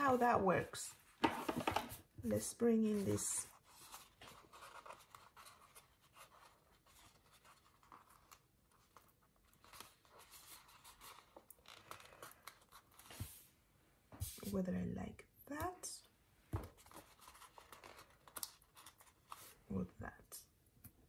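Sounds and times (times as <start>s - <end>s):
paper crinkling: 2.9s - 13.4s, 16.7s - 19.6s.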